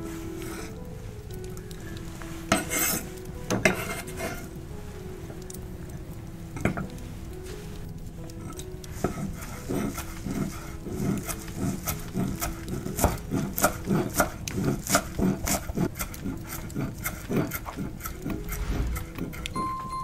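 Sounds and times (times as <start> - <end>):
knife chopping on wooden board: 11.2 - 16.2.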